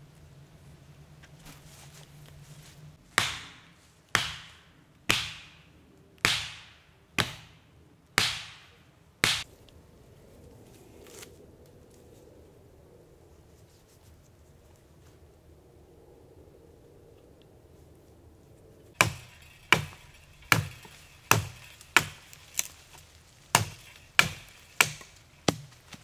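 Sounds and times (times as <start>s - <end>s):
hand tool striking wood: 3.2s - 5.6s, 19.0s - 26.0s.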